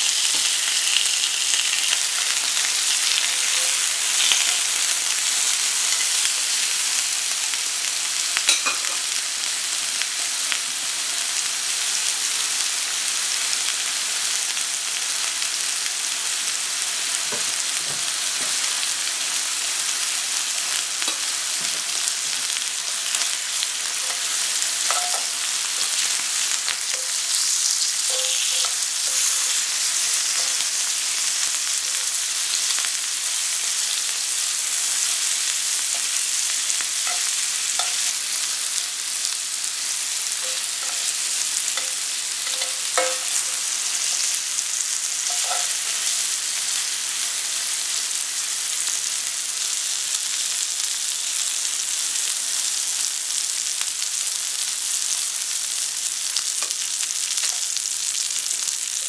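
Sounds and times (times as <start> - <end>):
chicken sizzling in skillet: 0.0 - 59.0
metal tongs clinking on pan: 8.5 - 9.1, 21.0 - 21.3, 23.1 - 31.2, 35.9 - 38.2, 40.4 - 44.2, 45.2 - 46.2.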